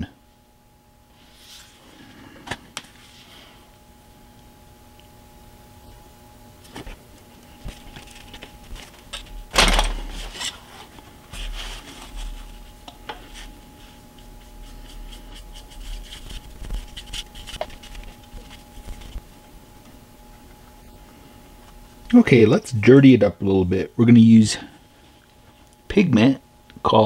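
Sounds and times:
faint steady hum: 0.0 - 27.0
paintbrush brushing on card: 13.3 - 19.2.

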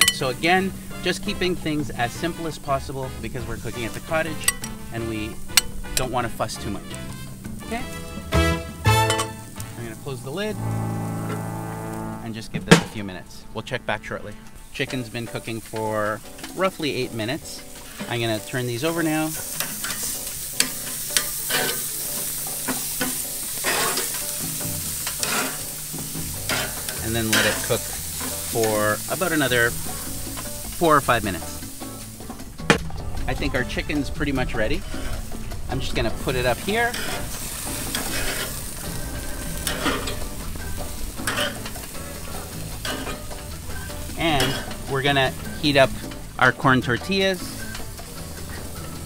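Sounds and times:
meat sizzling on a grill: 0.0 - 10.5, 13.4 - 49.0
metal tongs clicking on grate: 4.4 - 4.8, 19.4 - 22.0
tongs clicking against grate: 4.4 - 4.8.

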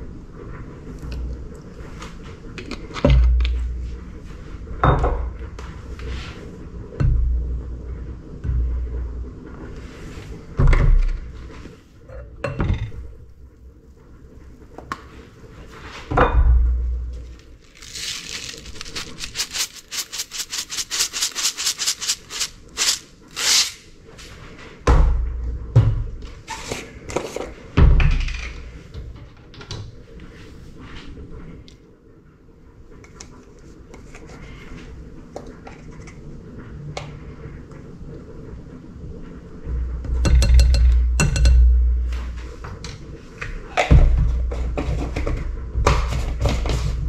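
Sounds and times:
spice bottle shaking rattle: 17.6 - 23.7.

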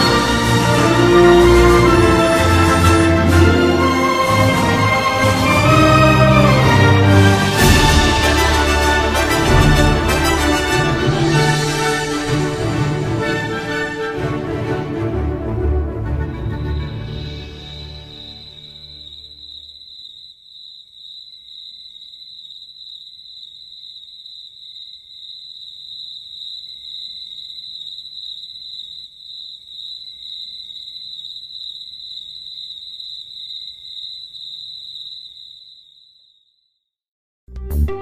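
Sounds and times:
crickets chirping: 17.2 - 36.8.

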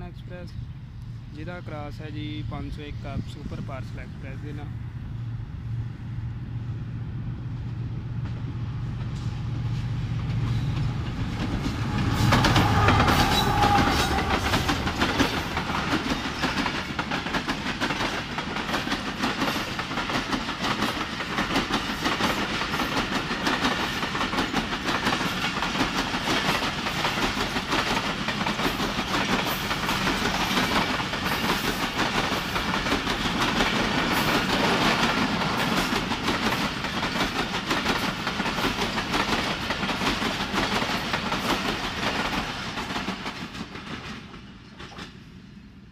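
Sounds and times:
diesel locomotive engine: 0.0 - 45.9
train wheels clicking on rails: 7.6 - 45.4.

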